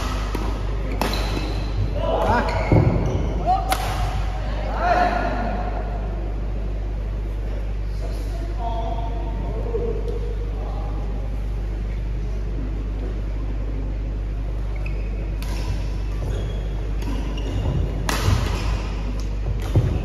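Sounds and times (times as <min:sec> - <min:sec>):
rackets smacking shuttlecock: 0:00.0 - 0:01.8, 0:03.7 - 0:04.3, 0:15.3 - 0:16.0, 0:18.0 - 0:20.0
low hum: 0:00.0 - 0:20.0.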